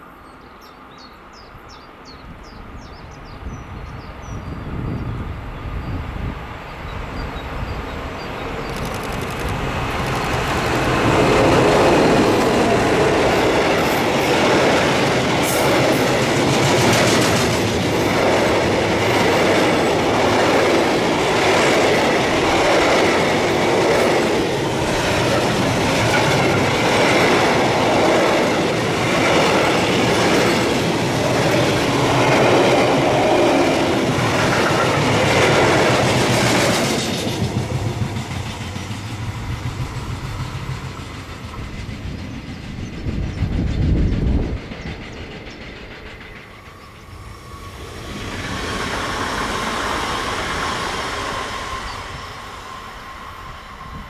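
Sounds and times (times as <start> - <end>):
freight train passing: 0.0 - 54.0.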